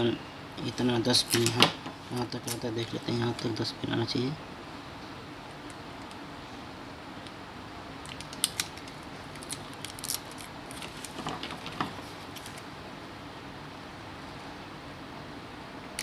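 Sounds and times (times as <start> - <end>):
faint background noise: 0.0 - 16.0
tape peeling crackles: 1.2 - 3.5, 8.0 - 12.7.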